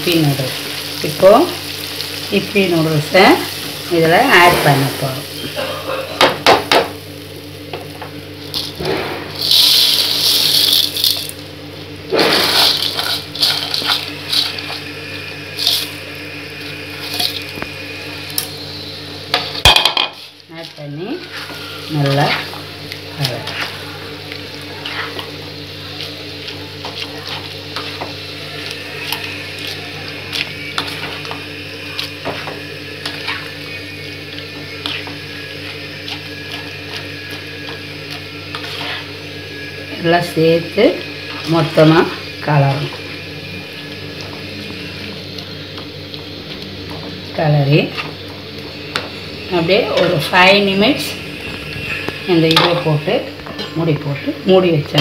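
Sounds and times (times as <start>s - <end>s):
steady low hum: 0.0s - 55.0s
dry noodles rushing into pan: 9.4s - 11.3s
spatula scraping pan: 21.0s - 39.3s.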